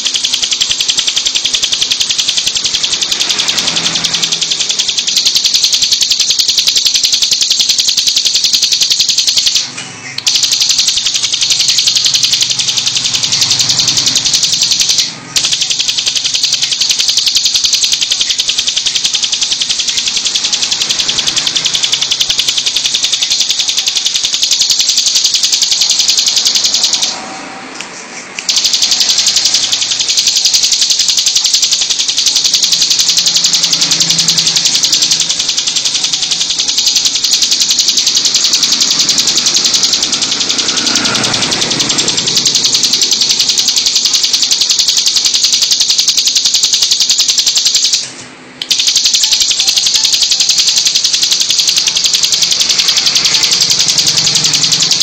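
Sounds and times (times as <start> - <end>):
bird buzzing trill: 28.5 - 44.7.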